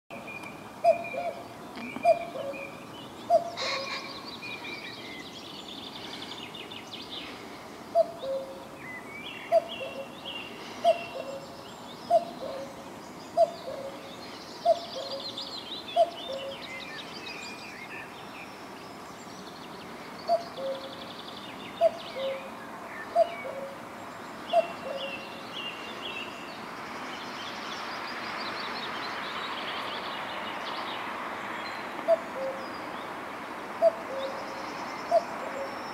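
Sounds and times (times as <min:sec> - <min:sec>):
cuckoo calling: 0:00.1 - 0:05.3, 0:07.9 - 0:17.0, 0:20.2 - 0:21.1, 0:21.7 - 0:23.8, 0:24.5 - 0:25.5, 0:32.0 - 0:32.7, 0:33.8 - 0:35.9.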